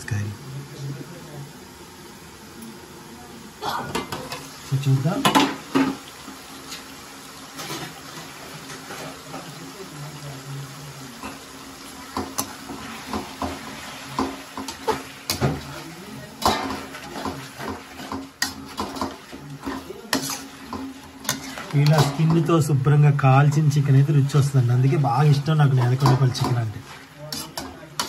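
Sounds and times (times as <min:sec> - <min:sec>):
food hissing in a pan: 0:00.2 - 0:28.0
metal ladle scraping a pan: 0:07.6 - 0:09.2, 0:16.4 - 0:22.5, 0:25.6 - 0:28.0.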